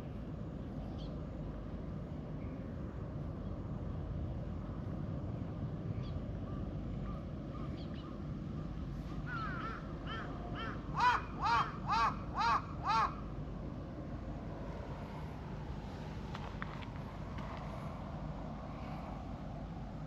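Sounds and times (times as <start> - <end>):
low background rumble: 0.0 - 20.0
crow cawing: 9.3 - 13.3.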